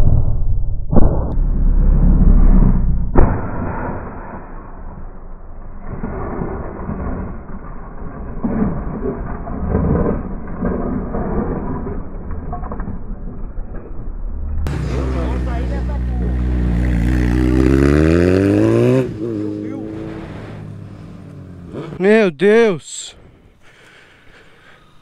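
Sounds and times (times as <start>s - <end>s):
motorcycle sliding on asphalt: 5.8s - 13.8s, 14.7s - 22.0s.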